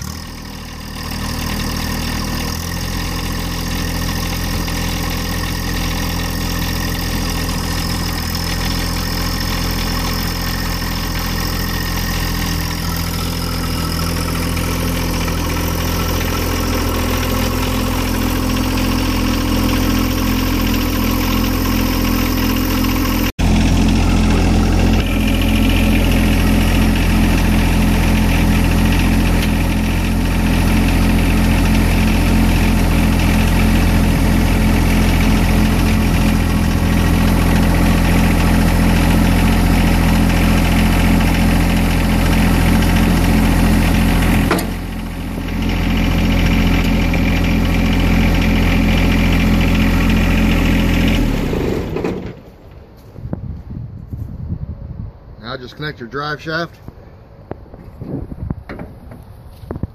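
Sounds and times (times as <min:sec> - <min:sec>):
diesel tractor engine idling: 0:00.0 - 0:59.9.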